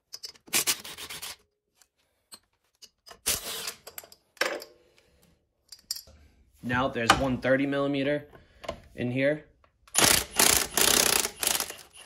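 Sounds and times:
cordless ratchet whirring: 9.9s - 12.0s.

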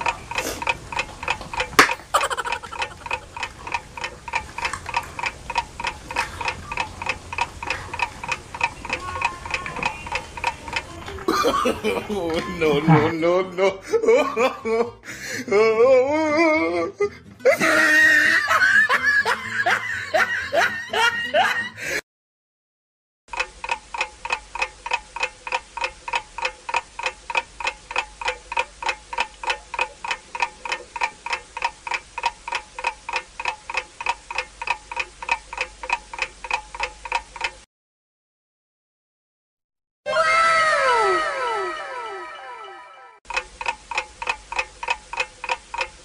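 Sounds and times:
timer ticking: 0.0s - 14.6s, 17.6s - 21.2s, 23.3s - 37.7s, 43.3s - 46.0s
person laughing: 1.8s - 3.5s, 11.2s - 22.0s, 40.2s - 42.6s.

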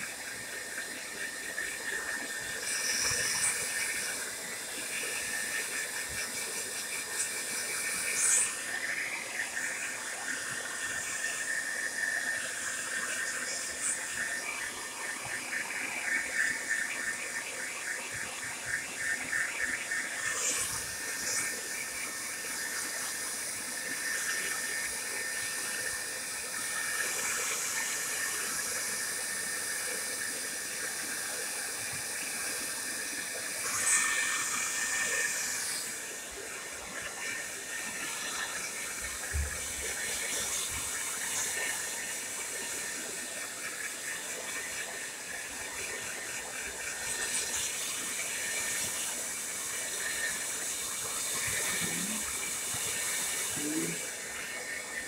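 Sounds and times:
hair dryer running: 0.0s - 55.0s.

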